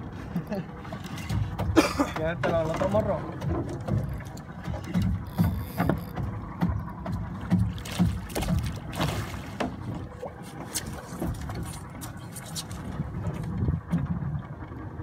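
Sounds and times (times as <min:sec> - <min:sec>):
wind and water rumble: 0:00.0 - 0:15.0
fish knocking against boat hull: 0:01.0 - 0:10.1
water splash: 0:07.4 - 0:14.0.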